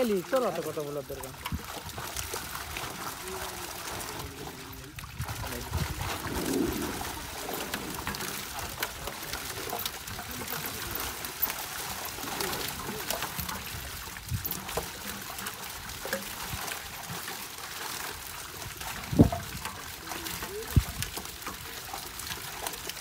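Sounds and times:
water splashing and trickling: 0.0s - 23.0s.

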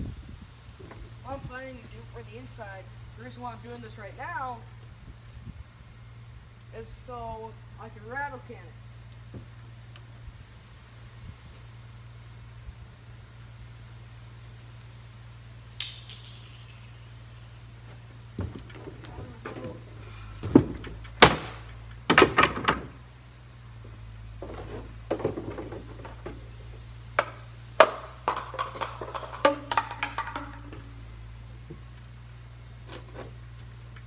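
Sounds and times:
steady low hum: 0.0s - 34.0s
wooden boards knocking and clattering: 18.3s - 23.1s, 24.4s - 31.1s.

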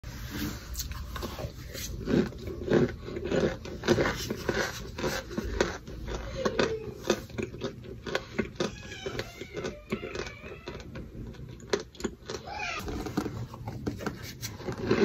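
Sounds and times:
plastic scoop digging powder: 0.1s - 6.0s
chewing crunches: 0.3s - 15.0s.

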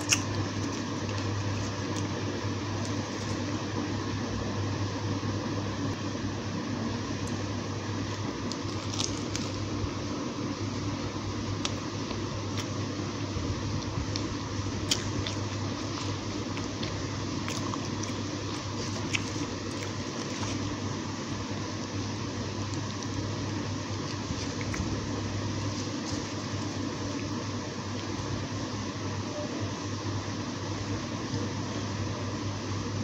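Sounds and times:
person chewing crunchy food: 0.0s - 3.8s, 7.2s - 10.1s, 10.7s - 28.3s
steady low hum and hiss: 0.0s - 33.0s.

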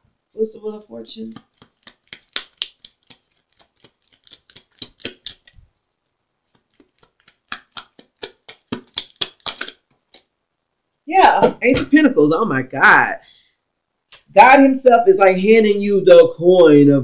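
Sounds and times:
cards being shuffled: 1.3s - 5.6s, 6.5s - 10.3s.

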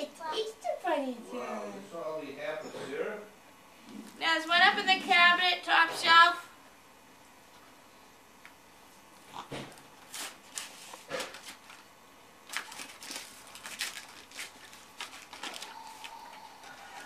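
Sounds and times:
cellophane crinkling: 10.0s - 17.0s.

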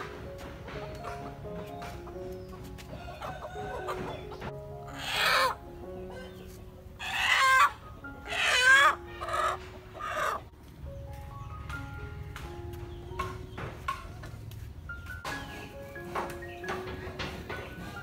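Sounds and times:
chicken squawking in distress: 4.9s - 6.2s, 7.0s - 10.5s.

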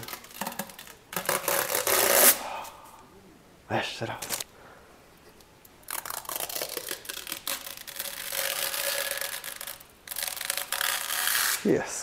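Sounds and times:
plastic film peeling off: 0.0s - 2.4s, 5.8s - 11.7s.

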